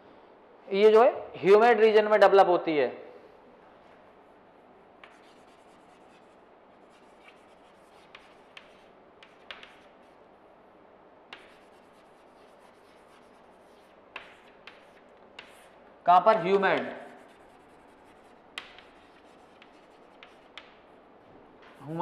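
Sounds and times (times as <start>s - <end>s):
chalk scratching on chalkboard: 5.0s - 10.2s, 11.3s - 20.8s
chalk tapping on board: 5.0s - 10.2s, 11.3s - 15.8s, 16.6s - 20.9s, 21.6s - 22.0s.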